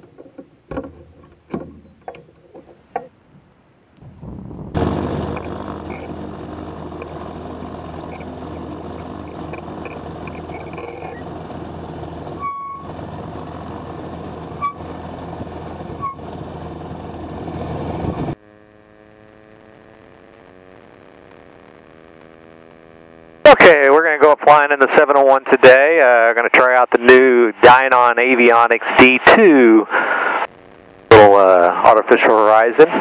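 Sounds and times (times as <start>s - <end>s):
aircraft engine and propeller running: 4.1s - 19.8s.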